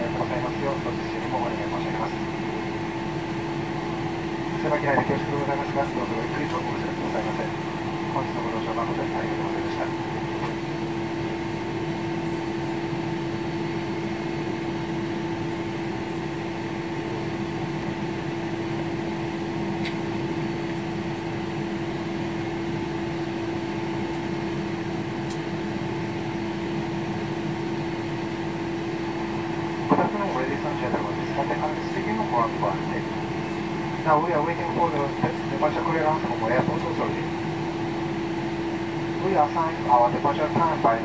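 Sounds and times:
airliner cabin engine drone: 0.0s - 41.0s.

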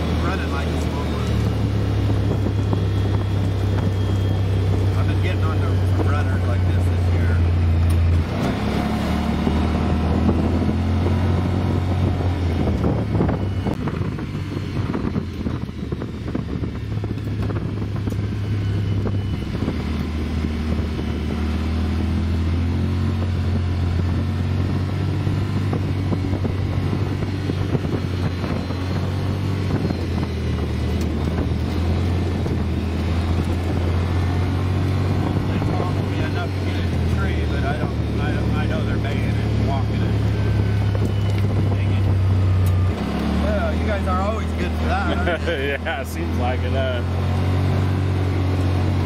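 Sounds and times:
utility vehicle engine running: 0.0s - 49.0s.

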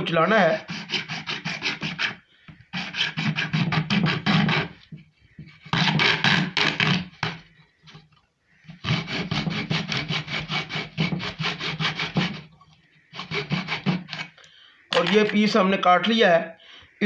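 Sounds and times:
hacksaw sawing plastic: 0.4s - 7.4s, 8.7s - 14.4s.

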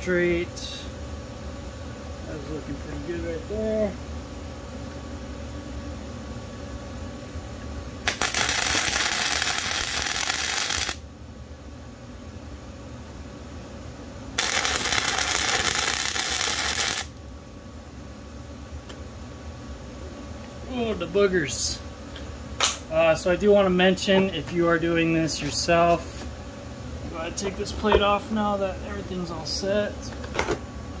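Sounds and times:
welder arc crackling: 8.0s - 11.0s, 14.4s - 17.2s.

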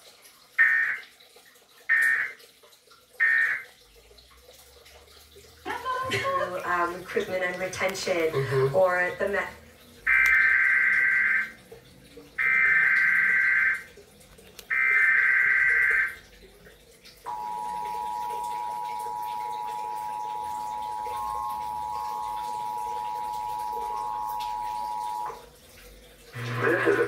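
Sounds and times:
two-tone alarm: 0.6s - 1.1s, 1.9s - 2.4s, 3.2s - 3.7s, 10.1s - 11.6s, 12.4s - 13.9s, 14.7s - 16.2s, 17.3s - 25.4s, 26.4s - 27.0s
digital screeching bursts: 3.2s - 3.6s, 10.1s - 11.6s, 12.4s - 13.9s.

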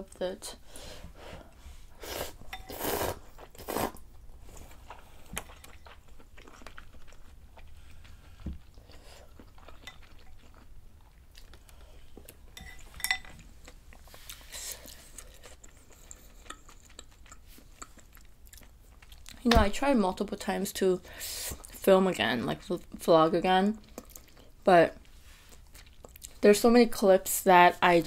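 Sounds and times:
slurping noodles: 2.0s - 4.0s
soft chewing: 2.4s - 19.4s, 23.7s - 26.4s.

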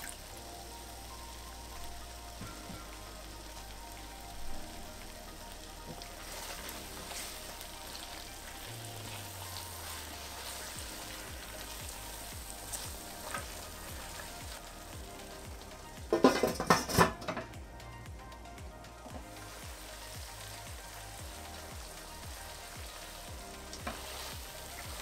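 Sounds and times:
food sizzling in a pot: 0.0s - 18.4s, 19.0s - 25.0s
spatula stirring: 5.9s - 14.7s
pot lid clattering: 16.1s - 17.5s.

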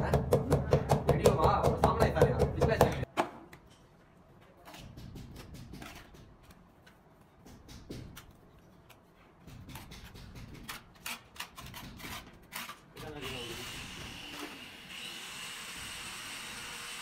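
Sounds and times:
trowel scraping mortar: 9.7s - 14.6s.

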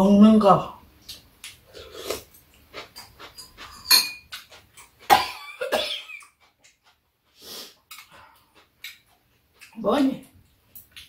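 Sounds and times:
person coughing: 5.1s - 6.2s.

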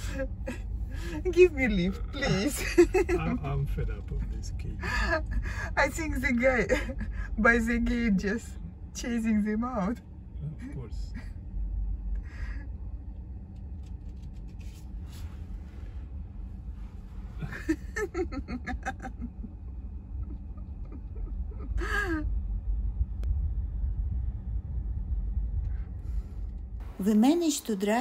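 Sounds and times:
car rumbling from inside cabin: 0.0s - 28.0s.

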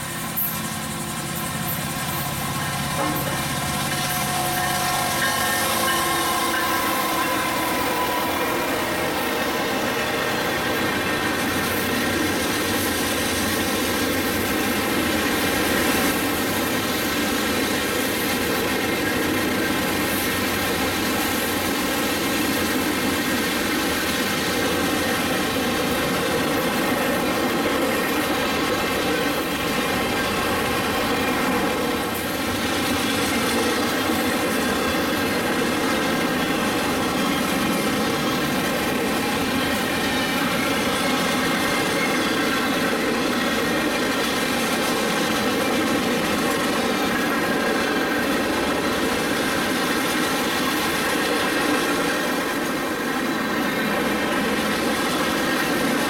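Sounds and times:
steady ringing tones: 0.0s - 12.1s
freight train wheels rumbling on rails: 0.0s - 56.0s.

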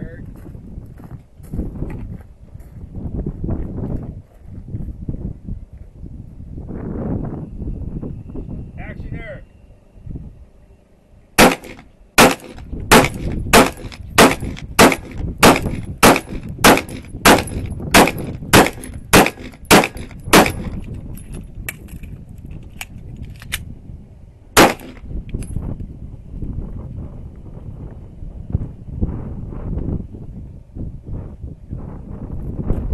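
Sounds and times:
handgun shots: 11.4s - 20.8s, 24.6s - 25.0s.

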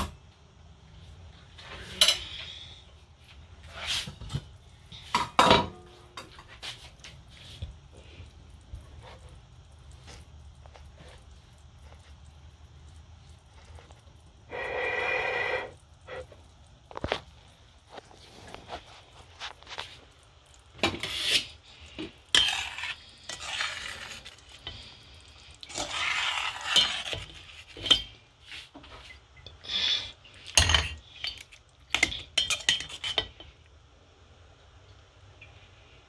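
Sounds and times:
metal spoon scraping a pot: 13.6s - 16.4s, 20.8s - 24.9s, 25.6s - 28.7s, 29.9s - 33.4s.

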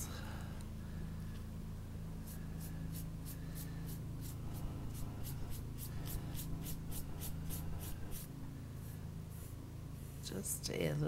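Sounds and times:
low hum: 0.0s - 10.8s
paintbrush swishing on paper: 2.2s - 10.3s.

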